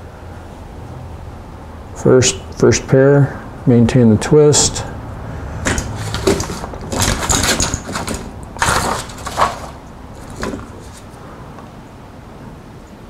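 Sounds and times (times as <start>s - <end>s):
hands and tools rustling: 5.6s - 11.2s
tool clacks on rubber mat: 5.7s - 11.1s.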